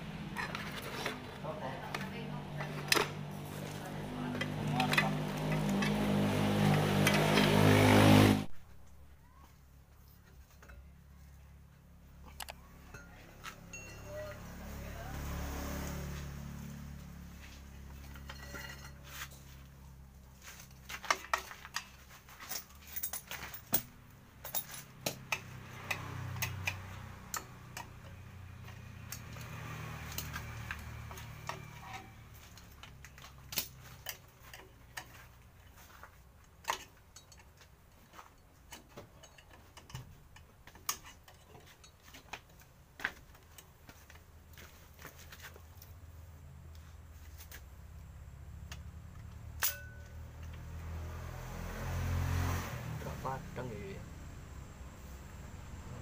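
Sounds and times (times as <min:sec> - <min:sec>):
screwdriver clicks and scrapes on metal: 0:24.5 - 0:35.3, 0:36.4 - 0:43.7, 0:48.6 - 0:50.6.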